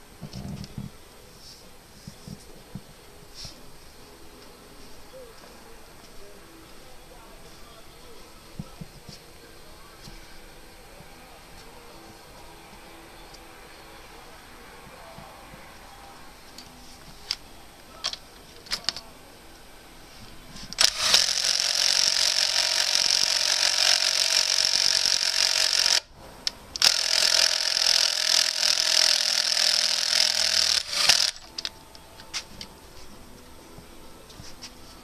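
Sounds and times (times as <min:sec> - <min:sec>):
cordless drill driving bolt: 0:20.7 - 0:26.1, 0:26.8 - 0:31.7.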